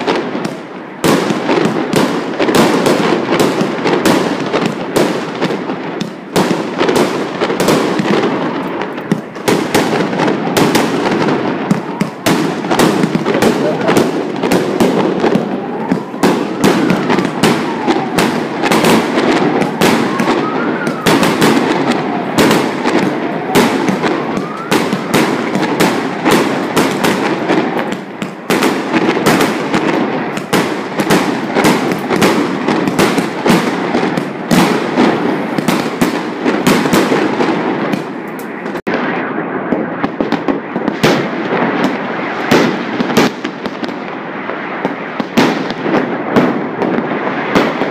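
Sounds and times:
firecrackers banging and crackling: 0.0s - 47.9s
firework booms: 0.0s - 47.9s
wailing tone: 15.2s - 25.5s.

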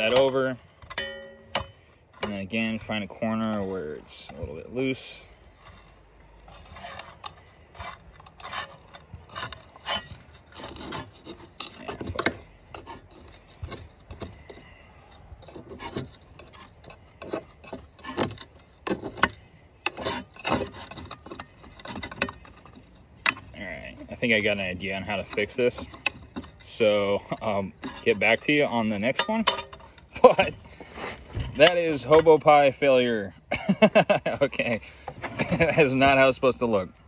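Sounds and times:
metal tool scraping pie iron: 0.0s - 33.4s.

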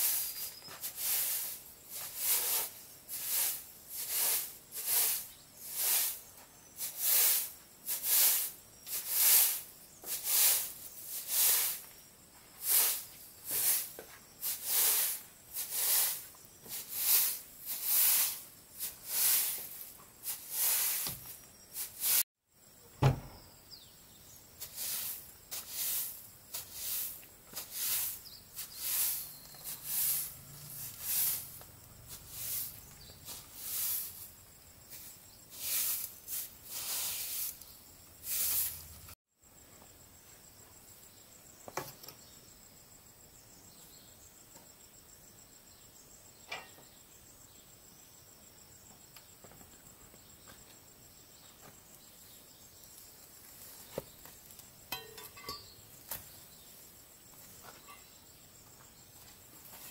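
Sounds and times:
dry rustling strokes: 0.0s - 11.9s, 12.6s - 22.2s, 24.6s - 39.2s
insects trilling: 0.0s - 59.9s.

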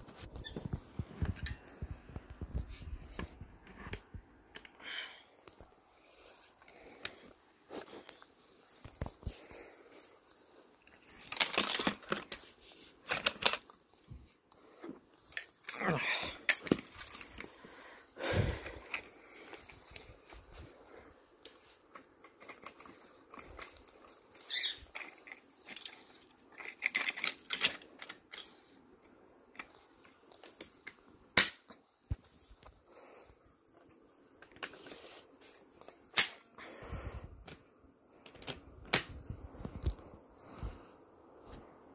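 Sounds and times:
fabric rustling: 0.0s - 26.8s.

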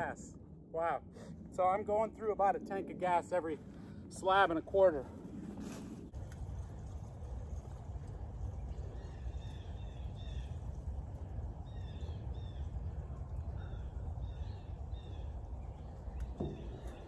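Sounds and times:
steady low rumble: 0.0s - 17.0s
birds chirping: 8.4s - 17.0s.

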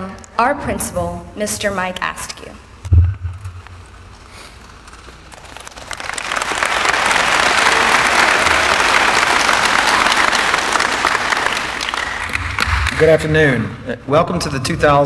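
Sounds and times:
audience applauding: 5.1s - 13.5s.

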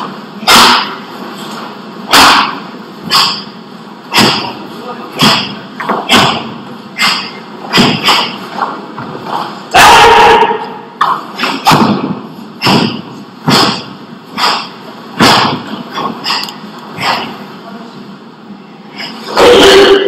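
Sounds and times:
person shouting: 9.8s - 10.7s.

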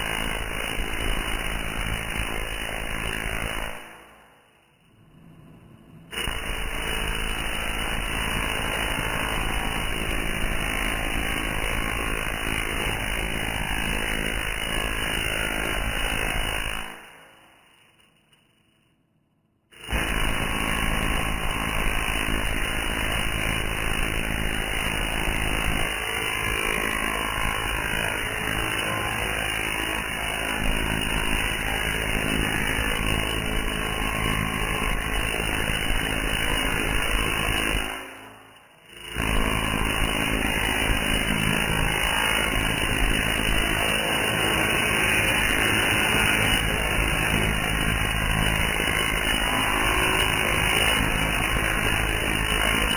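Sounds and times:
tesla coil sparks buzzing: 6.1s - 17.4s, 19.8s - 52.9s.

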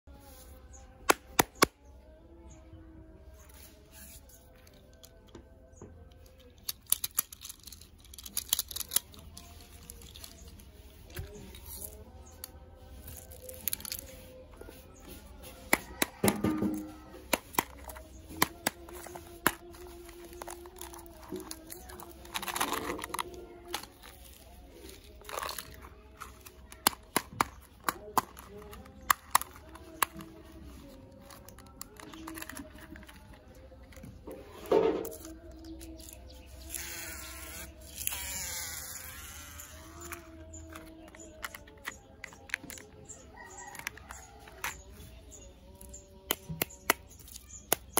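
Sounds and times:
plastic toy clicking and snapping: 6.0s - 10.6s, 11.2s - 14.1s, 15.7s - 34.1s, 35.0s - 44.9s, 45.8s - 47.9s
plastic wrapper crinkling and tearing: 6.1s - 14.4s, 17.3s - 33.7s
tape peeling: 6.1s - 16.2s, 16.8s - 33.8s, 35.0s - 44.6s.

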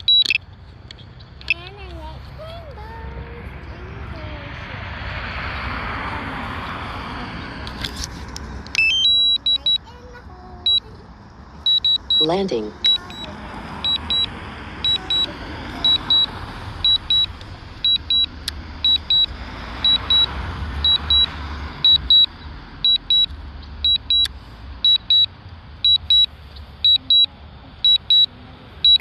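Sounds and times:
remote controller double beeps: 0.0s - 0.4s, 8.8s - 9.8s, 11.7s - 22.3s, 22.9s - 29.0s.

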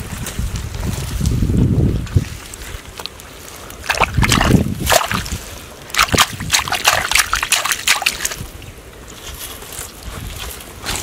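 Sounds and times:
hands squelching in wet mud: 2.0s - 8.7s.

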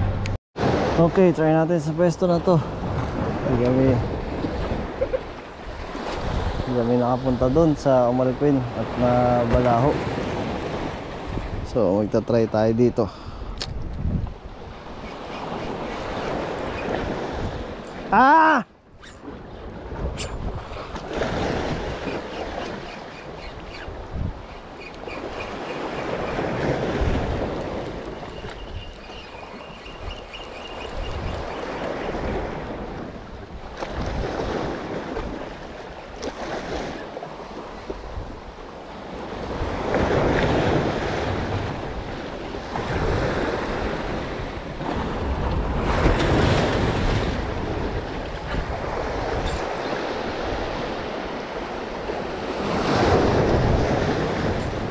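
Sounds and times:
wind buffeting microphone: 2.4s - 18.2s, 18.9s - 36.7s, 37.6s - 54.9s
sea waves washing onto shore: 19.3s - 54.9s.

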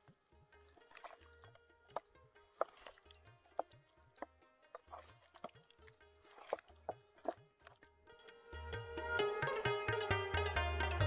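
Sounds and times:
chicken squelching in marinade: 0.0s - 7.8s.

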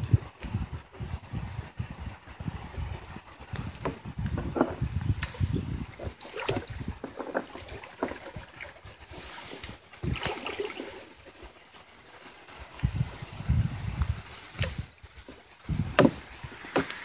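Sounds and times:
wind buffeting microphone: 0.0s - 10.4s, 12.5s - 17.0s
water lapping against hull: 2.6s - 12.2s
sharp water splashes: 5.2s - 8.9s, 9.5s - 11.3s.

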